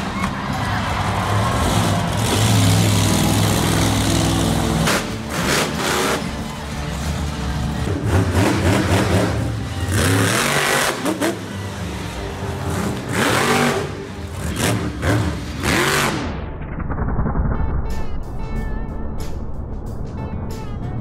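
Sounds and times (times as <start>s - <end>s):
truck engines revving hard: 0.0s - 16.4s.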